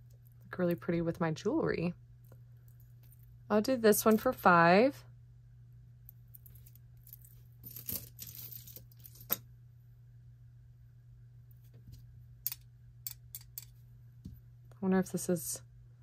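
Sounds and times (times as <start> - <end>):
metal jewelry clinking: 6.2 - 9.4.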